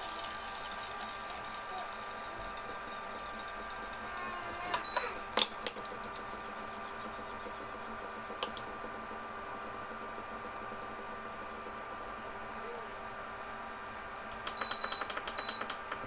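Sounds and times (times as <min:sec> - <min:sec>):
cooktop cooling fan hum: 0:00.0 - 0:16.0
sharp clicks: 0:14.3 - 0:16.0.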